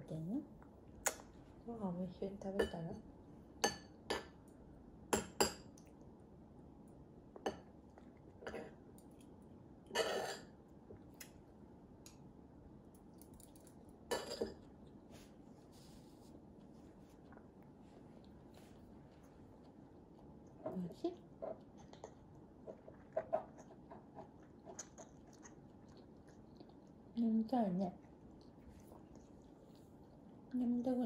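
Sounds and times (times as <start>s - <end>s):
cutlery clinking on ceramic plate: 9.9s - 10.5s.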